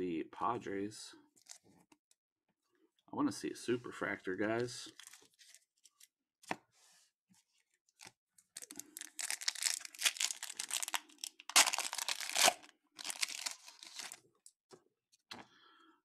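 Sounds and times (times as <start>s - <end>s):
foil wrapper tearing and crinkling: 8.5s - 14.2s.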